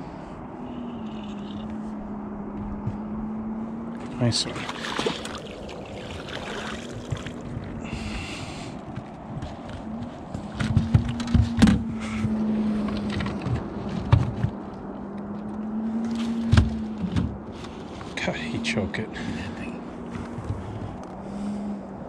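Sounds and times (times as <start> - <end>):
electric trolling motor humming: 0.0 - 8.9.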